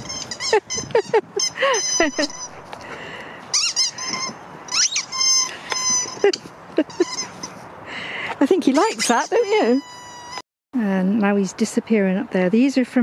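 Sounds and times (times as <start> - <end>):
squeaky dog toy squeaking: 0.0 - 2.6, 3.5 - 7.5, 8.7 - 10.4.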